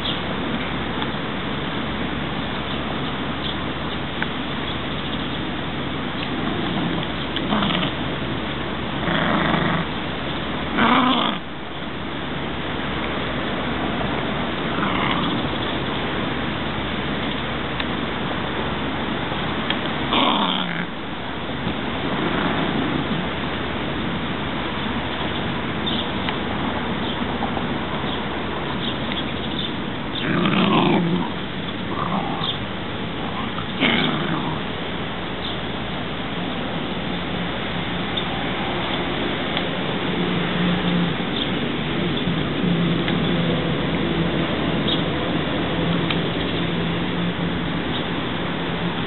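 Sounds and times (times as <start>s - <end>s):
steady rushing noise: 0.0s - 49.0s
dog growling: 6.4s - 8.0s, 9.0s - 10.0s, 10.7s - 11.5s, 14.7s - 15.6s, 20.1s - 21.0s, 22.2s - 22.8s, 30.1s - 34.7s.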